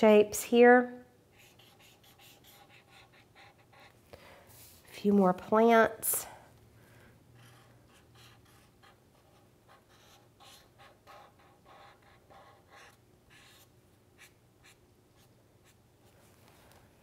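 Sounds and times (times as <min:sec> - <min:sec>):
marker scratching on paper: 0:01.3 - 0:04.0, 0:07.4 - 0:15.8.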